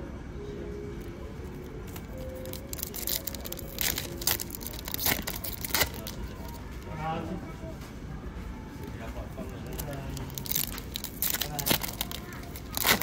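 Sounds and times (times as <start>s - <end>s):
steady low hum: 0.0s - 13.0s
foil wrapper crinkling: 1.0s - 6.9s, 9.4s - 13.0s.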